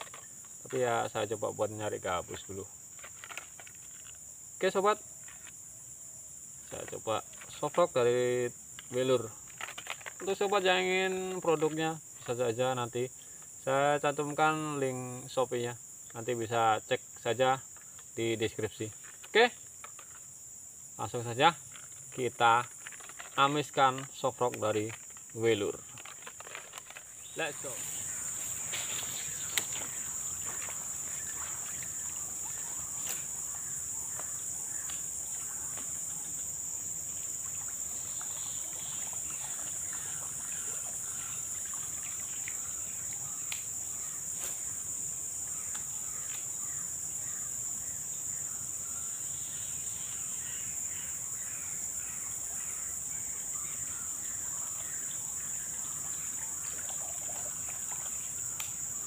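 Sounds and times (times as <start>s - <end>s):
insect chorus drone: 0.0s - 59.0s
faint clicks: 56.7s - 58.8s.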